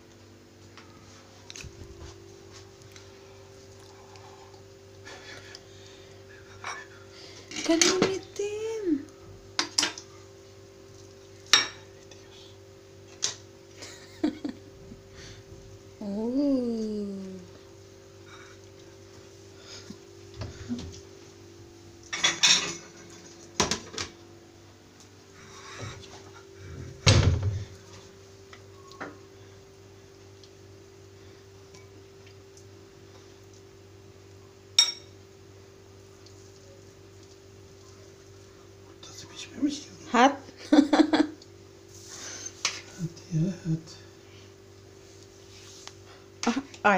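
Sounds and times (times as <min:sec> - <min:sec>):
steady low hum: 0:00.0 - 0:46.9
cutlery clinking on ceramic bowl: 0:34.8 - 0:35.2.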